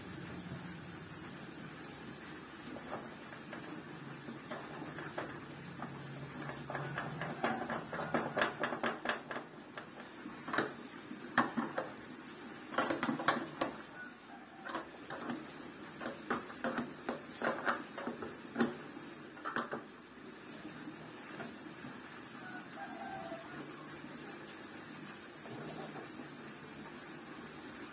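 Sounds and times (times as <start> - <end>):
wooden and plastic parts clicking: 4.4 - 10.8, 12.7 - 13.9, 14.6 - 18.8, 19.4 - 19.9.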